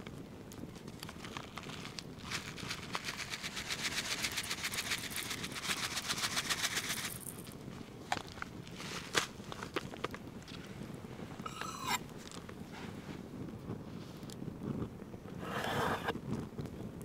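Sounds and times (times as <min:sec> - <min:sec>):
wood fire crackling: 0:00.0 - 0:17.0
seasoning rattling out of pouch: 0:00.7 - 0:07.6.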